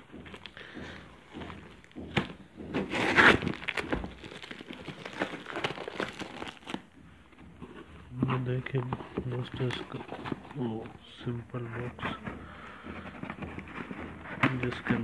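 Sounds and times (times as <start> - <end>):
plastic wrapping crinkling: 0.0 - 12.2
cardboard box torn open: 2.8 - 6.8.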